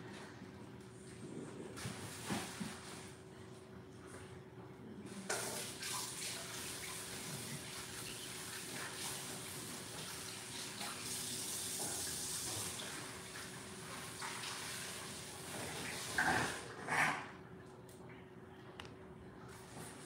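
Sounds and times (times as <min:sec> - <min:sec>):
water running into sink: 0:05.2 - 0:16.6.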